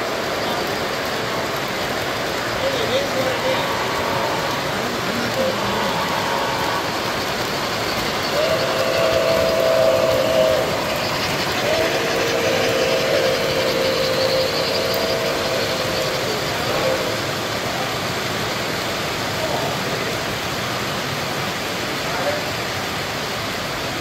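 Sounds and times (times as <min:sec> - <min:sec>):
model trains running: 0:00.0 - 0:24.0
two-note train horn: 0:08.2 - 0:17.3.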